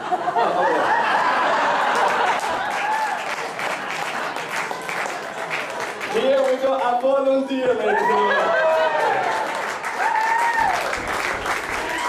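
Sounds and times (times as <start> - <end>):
audience applauding: 0.6 - 7.0, 7.9 - 12.0.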